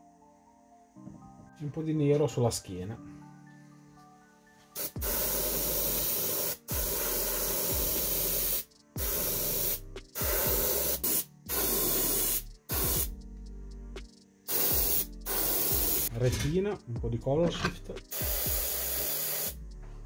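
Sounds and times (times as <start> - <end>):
airbrush spraying hiss: 4.7 - 13.2, 14.0 - 16.1, 18.0 - 19.6.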